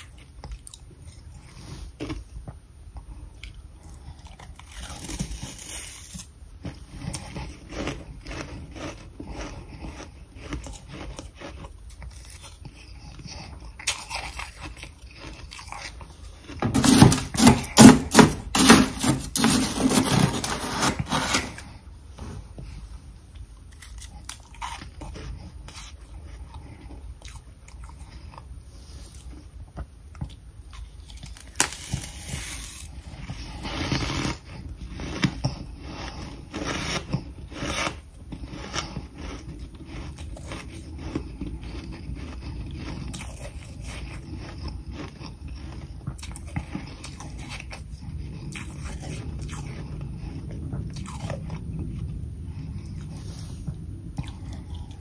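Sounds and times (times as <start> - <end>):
person chewing frost: 0.0 - 55.0
metal spoon scraping frost: 16.5 - 21.8, 31.6 - 42.9.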